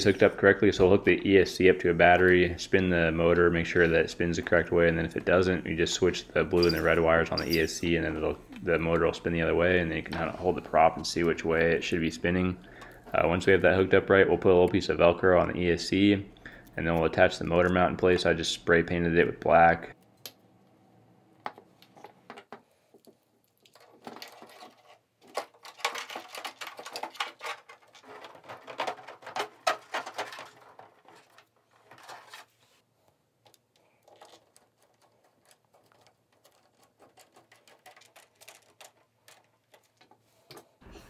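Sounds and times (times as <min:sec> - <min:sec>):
small parts clicking and rattling: 0:21.8 - 0:32.5, 0:33.4 - 0:40.7.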